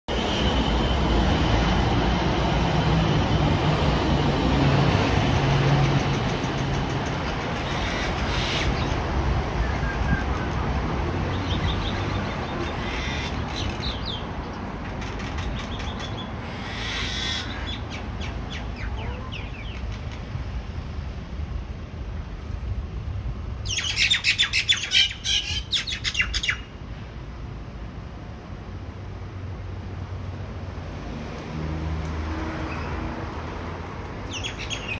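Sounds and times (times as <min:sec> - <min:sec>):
birds chirping and whistling: 0:15.1 - 0:20.0, 0:23.7 - 0:26.6, 0:34.3 - 0:34.9.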